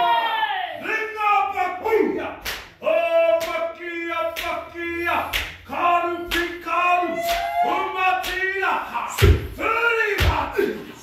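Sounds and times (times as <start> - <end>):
group chanting in unison: 1.8 - 11.0
body slaps or stamps: 9.2 - 9.6, 10.2 - 10.5.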